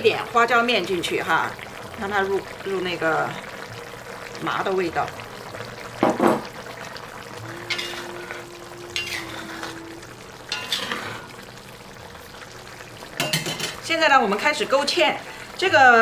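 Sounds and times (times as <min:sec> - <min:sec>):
sauce bubbling: 0:00.0 - 0:16.0
metal spatula scraping a wok: 0:07.6 - 0:09.8, 0:10.5 - 0:11.4.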